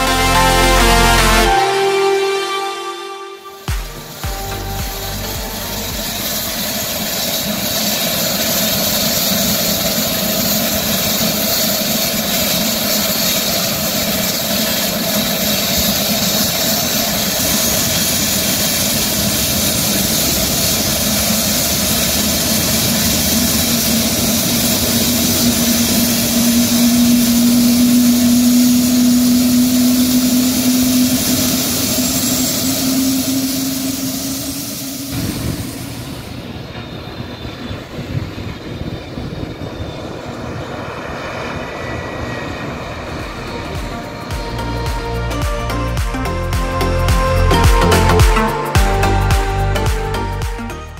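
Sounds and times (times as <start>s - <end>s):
rising hum: 0.0s - 50.9s
turboprop engines droning: 0.0s - 50.9s.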